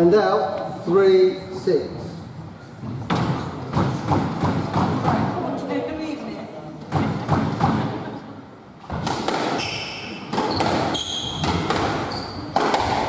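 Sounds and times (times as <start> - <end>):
racket smacking squash ball: 2.9 - 5.4, 6.8 - 8.0, 8.8 - 13.0
shoes squeaking on wooden floor: 8.8 - 12.6.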